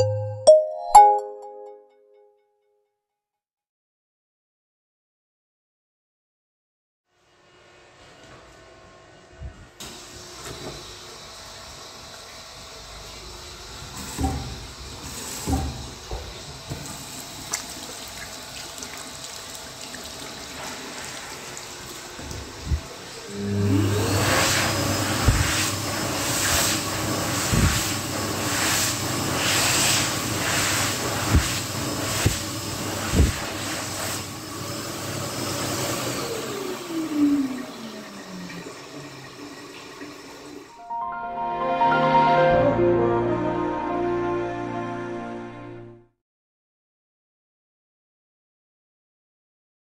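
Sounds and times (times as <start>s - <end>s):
hand dryer running: 9.8s - 40.8s.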